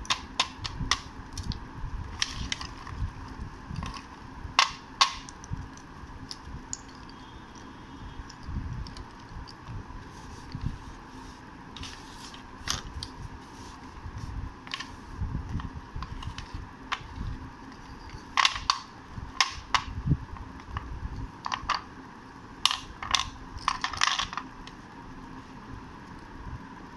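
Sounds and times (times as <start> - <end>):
slate pieces clacking together: 18.0 - 19.9.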